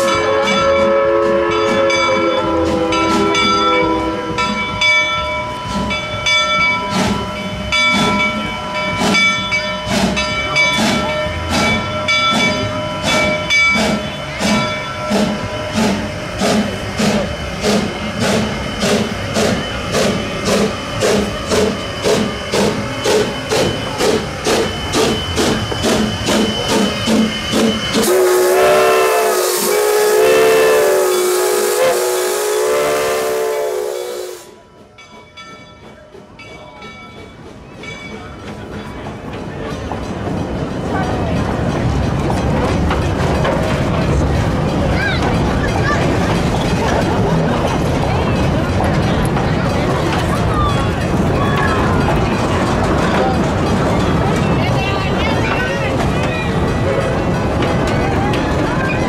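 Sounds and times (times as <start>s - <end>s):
locomotive bell ringing: 0.0s - 59.0s
steam whistle blast: 26.3s - 34.6s.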